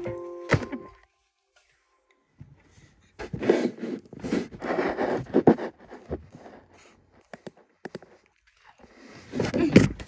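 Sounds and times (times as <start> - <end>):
book pages rustling: 3.1 - 9.6.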